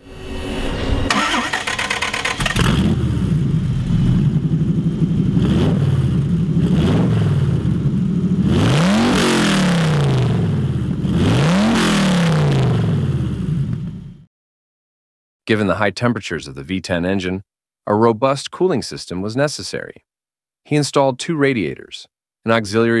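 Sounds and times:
motorcycle engine revving: 1.1s - 14.2s
motorcycle engine idling: 1.8s - 8.4s.

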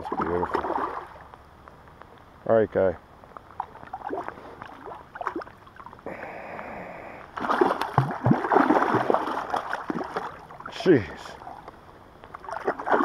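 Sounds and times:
fish splashing at water surface: 7.3s - 10.8s, 12.3s - 13.0s.

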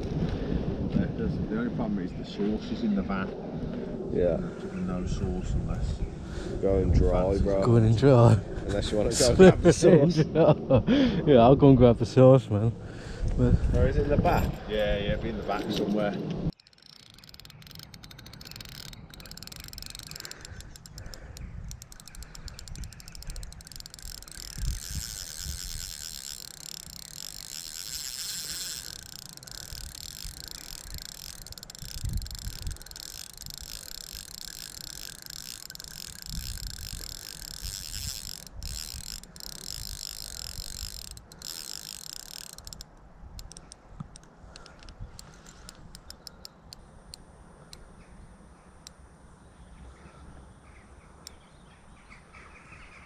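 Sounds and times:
fishing reel ticking whirr: 16.5s - 47.9s, 48.8s - 49.0s.

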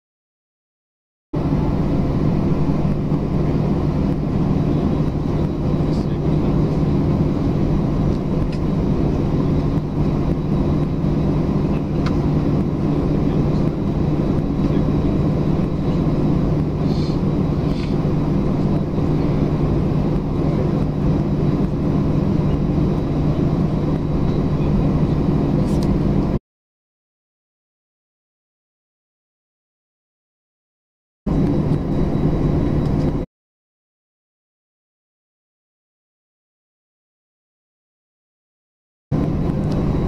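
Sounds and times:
jet engines idling: 1.4s - 26.4s, 31.3s - 33.2s, 39.2s - 40.0s.

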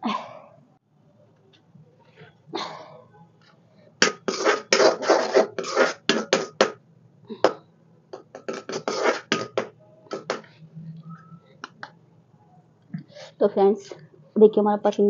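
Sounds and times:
metal ladle scraping iron pan: 4.0s - 6.7s.

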